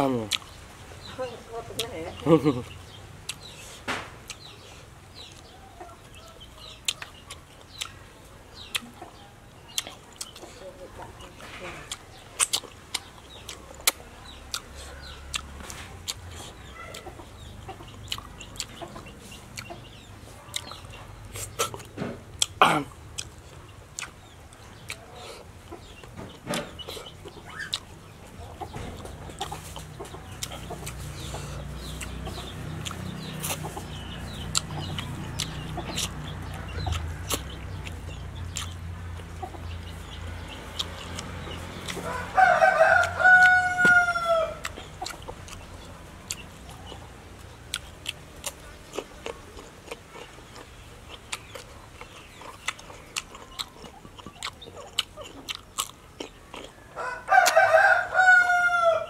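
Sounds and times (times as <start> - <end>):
mouth clicks and chewing: 0.2 - 0.6, 1.7 - 57.7
rooster crowing: 42.0 - 44.7, 56.9 - 59.0.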